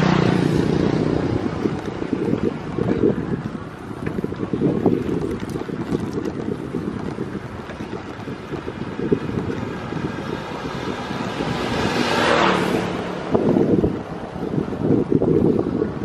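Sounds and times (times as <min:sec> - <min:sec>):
motorcycle engine passing: 0:00.0 - 0:03.1, 0:09.0 - 0:13.9
wind noise on microphone: 0:00.0 - 0:16.0.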